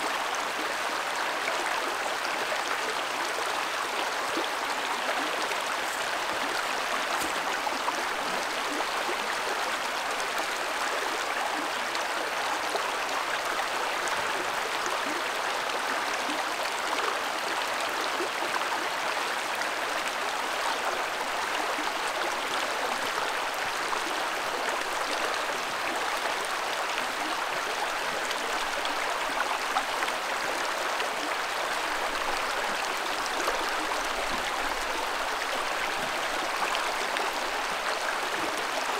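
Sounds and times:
creek water over rocks: 0.0 - 38.9.

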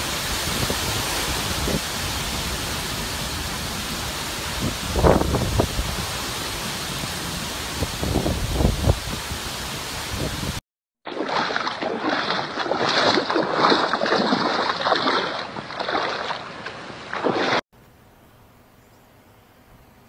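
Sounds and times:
heavy rain: 0.0 - 10.6
hurricane wind: 0.0 - 10.6
floodwater splashing and sloshing: 11.0 - 17.6.

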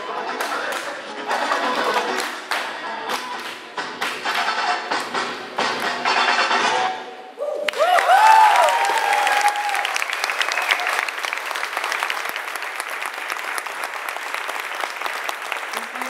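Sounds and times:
audience clapping: 0.3 - 5.2, 7.6 - 16.0
high whoops and shouts: 7.4 - 11.1.

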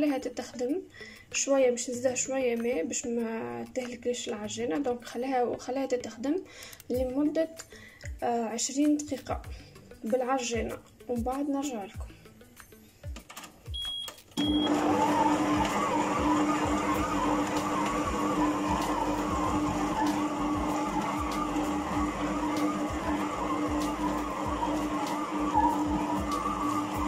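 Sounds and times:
short high beeps: 13.7 - 14.7
stand mixer motor hum: 14.4 - 27.0.

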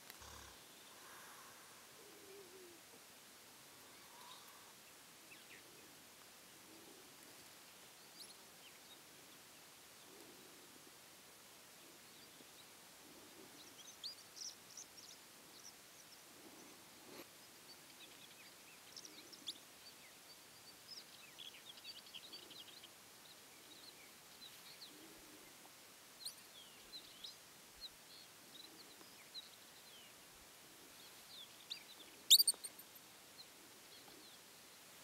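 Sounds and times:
animal chirps and twitters: 32.3 - 32.8.

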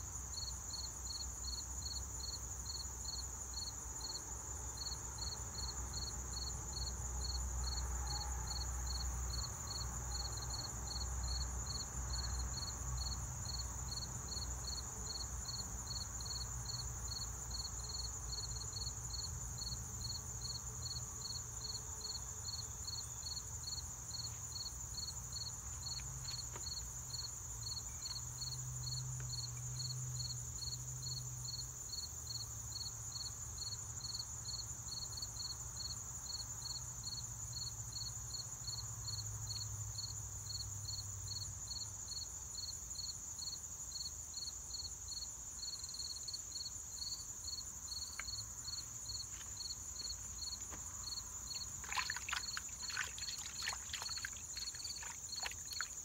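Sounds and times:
insects chirping drone: 0.0 - 56.0.

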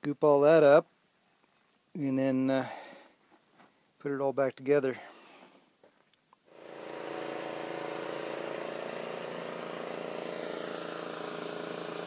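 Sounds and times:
engine running steadily: 6.5 - 12.0.

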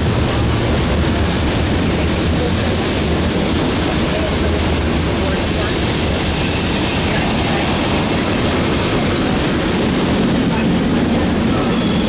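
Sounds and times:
freight train rumbling past: 0.0 - 12.0.

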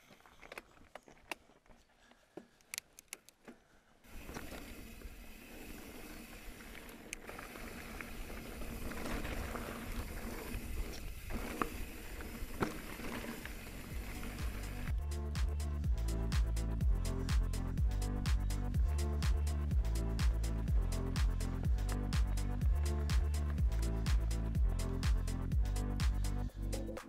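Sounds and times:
bike clicks and rattles: 0.0 - 15.0, 18.4 - 26.9
tyres and wind rushing: 5.0 - 14.9.

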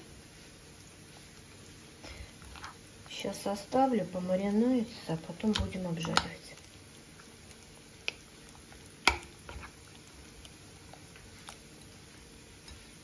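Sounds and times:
spoon squishing marinade: 5.2 - 11.9.

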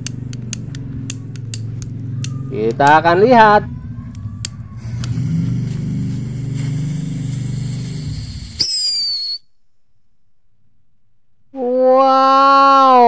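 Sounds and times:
firework hissing and buzzing: 4.7 - 9.4
short high whistle: 8.1 - 9.5.

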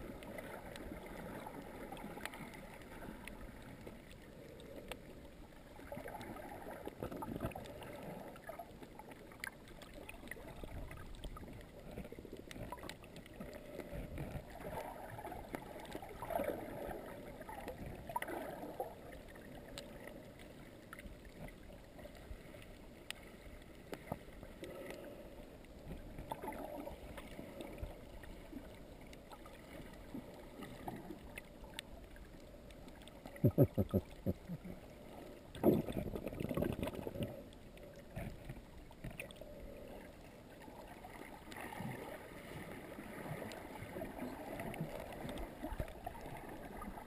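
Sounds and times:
muffled underwater water gurgling: 0.0 - 47.0
faint clicks: 1.6 - 16.4, 19.1 - 40.4.

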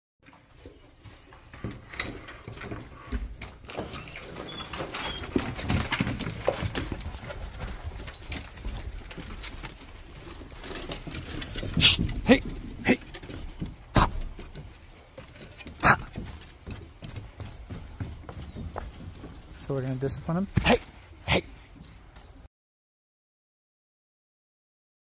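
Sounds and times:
dog claws clicking on wooden deck: 1.0 - 19.6.

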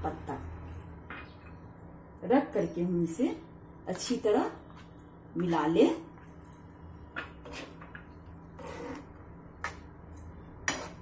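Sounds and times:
spoon scraping frying pan: 7.2 - 9.8, 10.6 - 11.0.

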